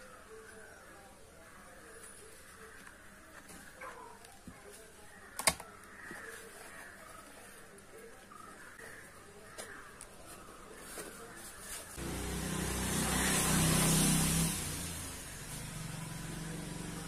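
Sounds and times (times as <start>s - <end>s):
vehicle engine running: 12.0s - 17.0s.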